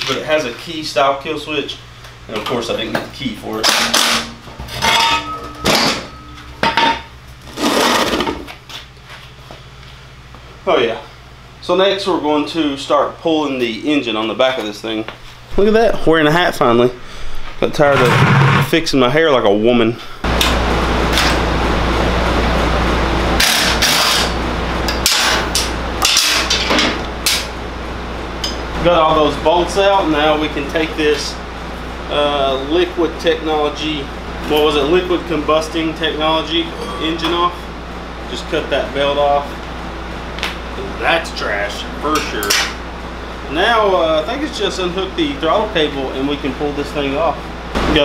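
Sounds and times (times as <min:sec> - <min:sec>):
metal tools clattering: 0:03.6 - 0:07.1
metallic ring: 0:03.6 - 0:07.1, 0:36.7 - 0:37.7
impact wrench running: 0:23.4 - 0:27.4.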